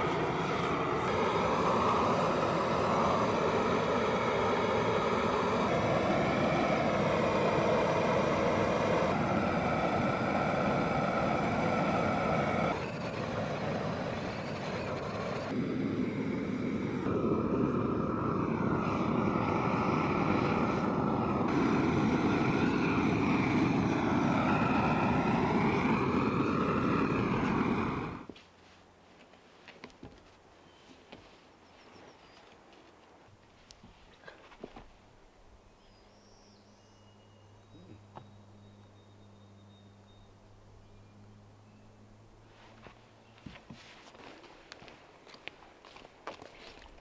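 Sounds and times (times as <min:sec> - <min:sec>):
engine running: 0:00.0 - 0:28.3.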